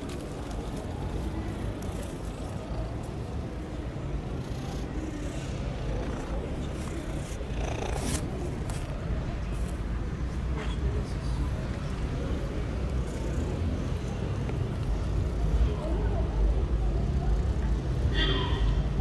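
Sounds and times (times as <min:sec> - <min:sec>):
cat purring: 0:04.3 - 0:08.4.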